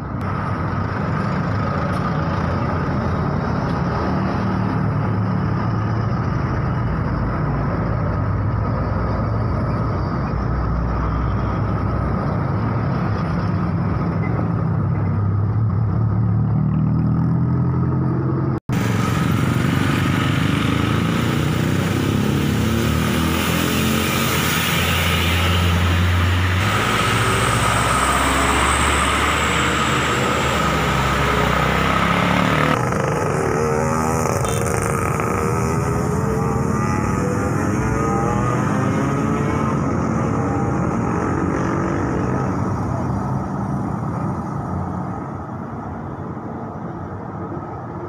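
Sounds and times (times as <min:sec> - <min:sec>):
bus passing: 0:00.0 - 0:48.0
cars passing: 0:00.0 - 0:48.0
trucks passing: 0:00.0 - 0:48.0
motorcycles passing: 0:11.6 - 0:46.1.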